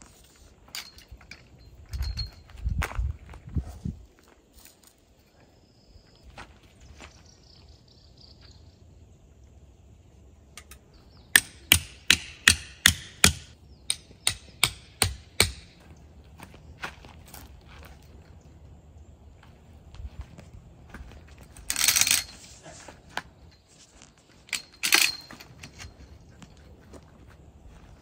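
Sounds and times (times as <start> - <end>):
hammer striking tent stake: 11.4 - 15.8.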